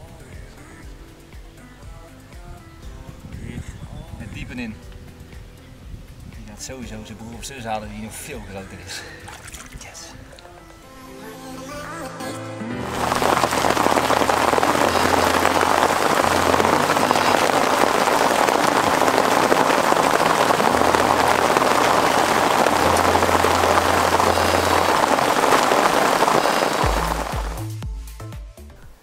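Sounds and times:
heavy rain pattering: 12.8s - 27.8s.

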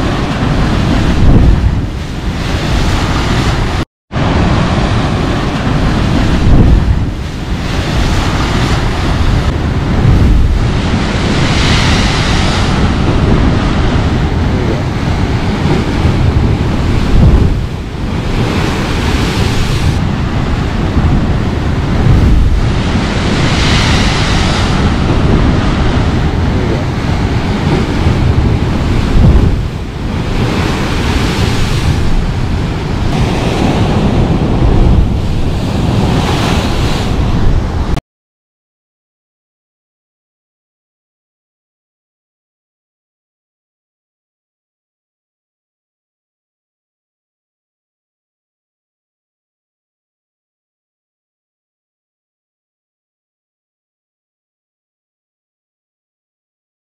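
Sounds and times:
ocean surf crashing on rocks: 0.0s - 38.0s
wind on microphone: 0.0s - 38.0s.

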